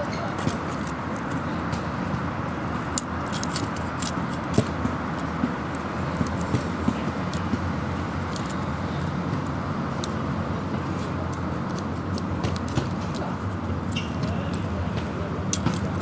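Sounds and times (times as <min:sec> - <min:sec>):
plastic toy clicks and taps: 0:11.2 - 0:16.0.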